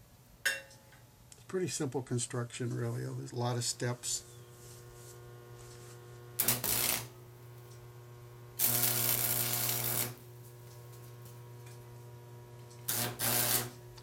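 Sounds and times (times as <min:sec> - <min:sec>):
steady electrical hum: 0:00.0 - 0:14.0
welding arc crackling: 0:04.0 - 0:14.0.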